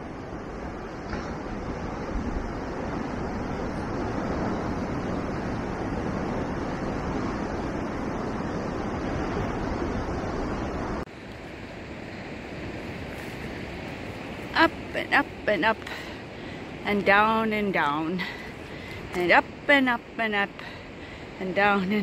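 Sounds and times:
ocean surf breaking on rocks: 0:00.0 - 0:22.0
wind on microphone: 0:00.0 - 0:22.0.

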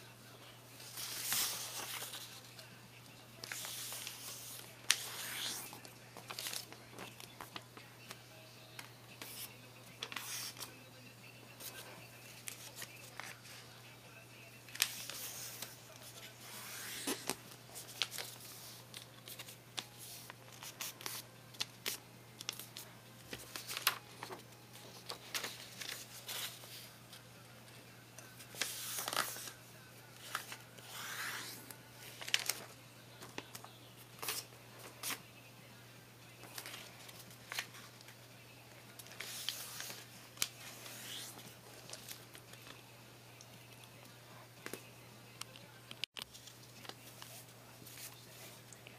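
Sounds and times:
paper rustling and folding: 0:00.8 - 0:02.7, 0:03.4 - 0:08.2, 0:14.7 - 0:27.2, 0:28.4 - 0:35.2, 0:36.4 - 0:38.2, 0:38.9 - 0:42.8.

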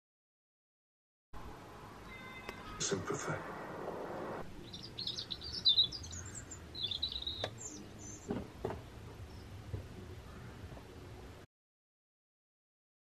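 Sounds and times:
small songbird chirping: 0:04.5 - 0:08.4, 0:09.2 - 0:09.6
faint knocks: 0:08.3 - 0:09.9.

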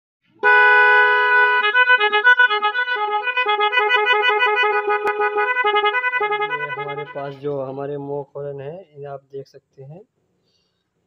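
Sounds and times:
electronic multi-tone horn: 0:00.4 - 0:07.8.

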